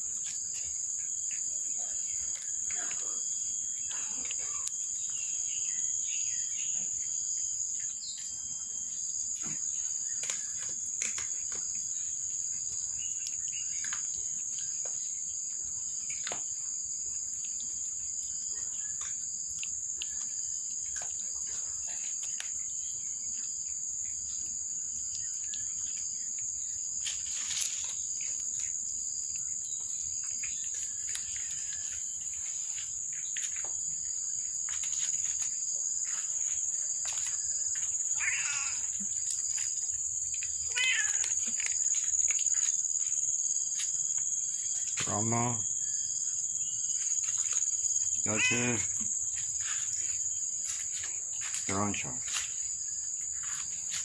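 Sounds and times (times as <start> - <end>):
kittens eating with small clicks: 0.2 - 3.1, 9.4 - 34.0, 36.1 - 45.0
high-pitched insect drone: 29.6 - 54.0.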